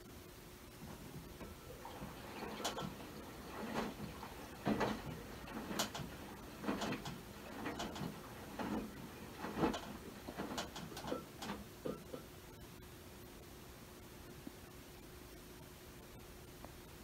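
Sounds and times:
washing machine clunk and swish: 0.8 - 12.2.

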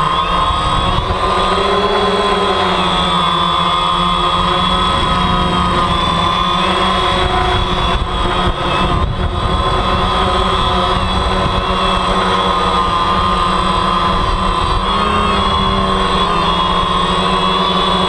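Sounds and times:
drone propellers whining: 0.0 - 18.0
rough low rumble: 4.2 - 8.8.

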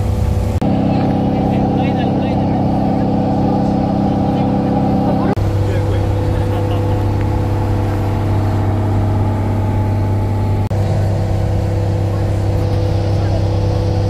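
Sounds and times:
boat engine droning: 0.0 - 14.0.

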